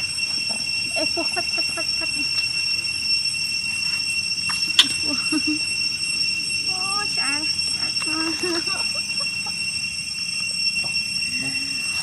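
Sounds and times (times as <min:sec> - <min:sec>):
high-pitched whine: 0:00.0 - 0:12.0
macaques squeaking: 0:04.4 - 0:05.9, 0:07.1 - 0:10.0.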